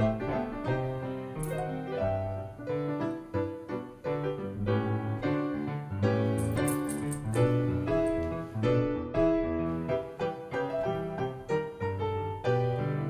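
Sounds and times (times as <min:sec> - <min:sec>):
solo piano music: 0:00.0 - 0:13.0.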